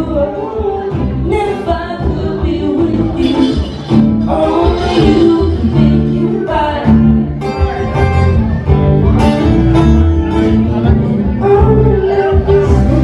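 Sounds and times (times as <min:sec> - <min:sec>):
man singing: 0:00.0 - 0:07.4, 0:11.0 - 0:13.0
acoustic guitars strummed and picked: 0:00.0 - 0:13.0
low bass notes: 0:00.0 - 0:13.0.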